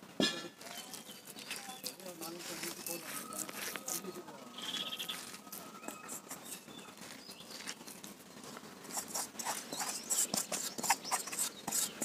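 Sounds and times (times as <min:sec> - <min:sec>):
hands rustling paste on leaf: 0:00.6 - 0:08.2.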